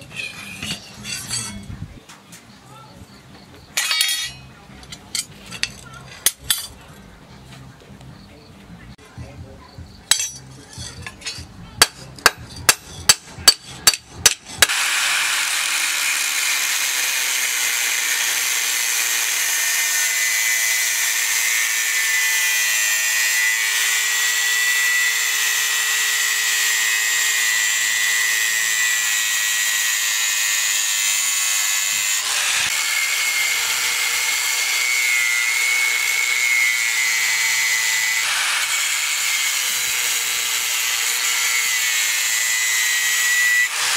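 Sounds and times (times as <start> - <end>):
angle grinder cutting steel: 0.0 - 1.8, 3.8 - 6.8, 10.1 - 43.9
sharp metal knocks: 10.1 - 14.7.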